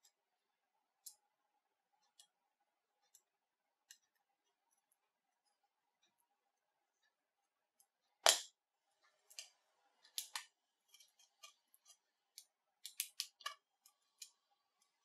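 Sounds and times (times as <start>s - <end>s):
sharp clicks and snaps: 10.1s - 14.4s.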